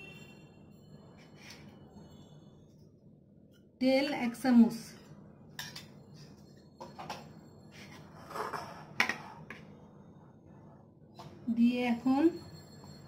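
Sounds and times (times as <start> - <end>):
spoon scraping bowl: 7.7 - 9.6.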